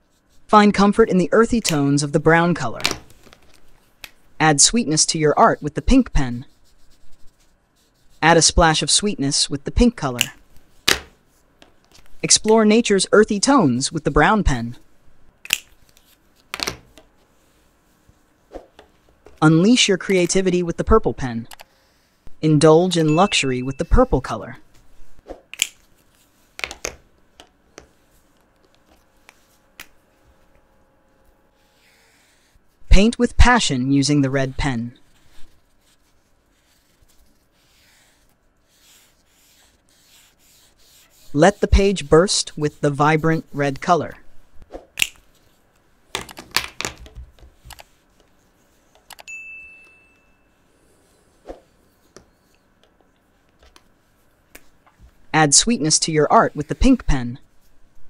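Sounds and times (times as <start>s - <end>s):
markers clicking and tapping: 15.4s - 17.1s, 45.0s - 45.4s, 46.1s - 49.3s
high notification bell ding: 23.0s - 24.0s, 49.3s - 50.6s.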